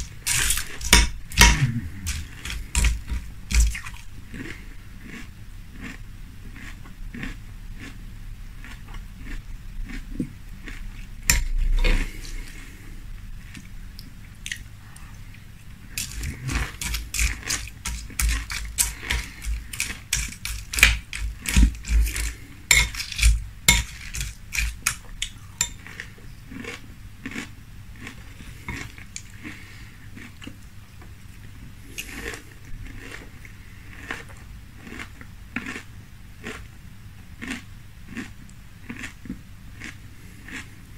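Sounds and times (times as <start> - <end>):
chewing crunchy cereal: 0.0 - 8.0, 8.6 - 30.7, 31.3 - 36.7, 37.4 - 40.9
metal spoon in glass bowl: 16.0 - 25.0.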